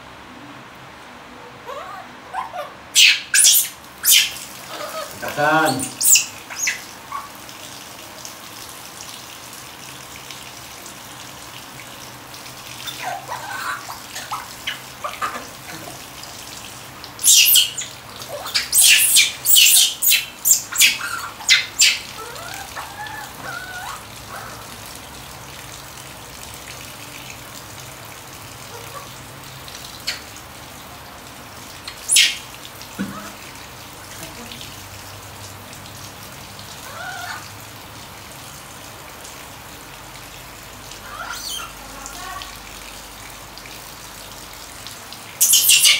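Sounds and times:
monkey drawn-out call: 1.4 - 7.4, 12.9 - 16.0, 17.2 - 24.7, 31.9 - 32.4, 36.8 - 37.5, 41.0 - 42.4, 45.4 - 45.9
baby monkey squealing: 1.6 - 7.3, 12.8 - 15.9, 17.2 - 24.5, 31.9 - 32.4, 41.0 - 41.8, 45.4 - 45.9
shower water spraying: 3.0 - 30.7.

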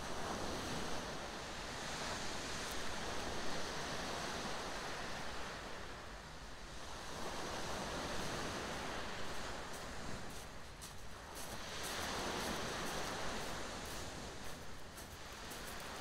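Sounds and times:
waves breaking on shingle beach: 7.6 - 16.0.

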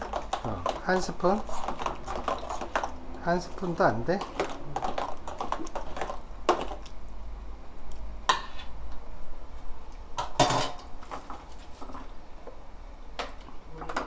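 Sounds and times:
kitchenware clinks and knocks: 10.2 - 10.8.

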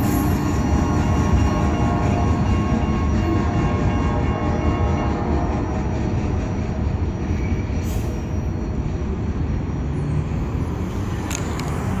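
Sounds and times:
freight train rumble: 0.0 - 12.0
road vehicle engine hum: 7.8 - 12.0.

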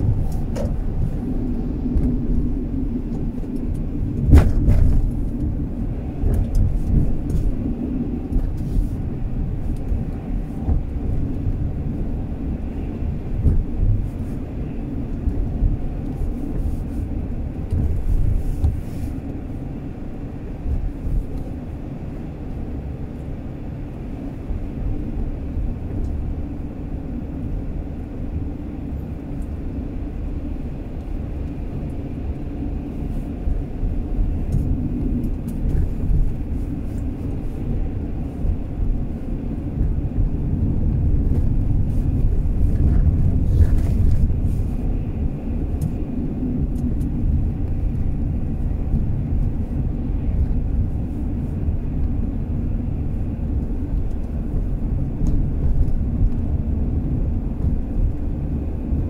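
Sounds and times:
car engine and tyre rumble: 0.0 - 59.0.

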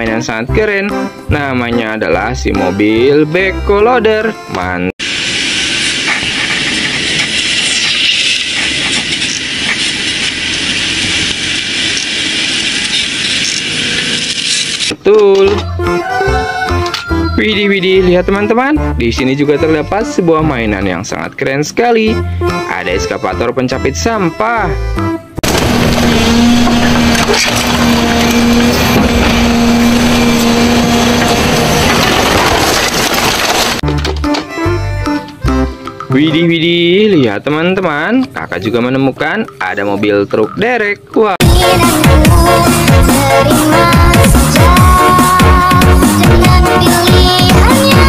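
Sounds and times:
site machines running: 5.0 - 14.9, 25.4 - 33.9
metal crunching and scraping: 25.4 - 34.6
backhoe diesel engine digging: 25.4 - 35.7.

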